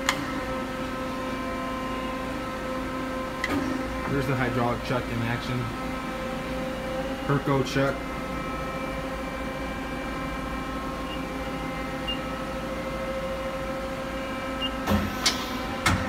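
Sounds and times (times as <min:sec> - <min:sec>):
lathe humming and whining: 0:00.0 - 0:16.0.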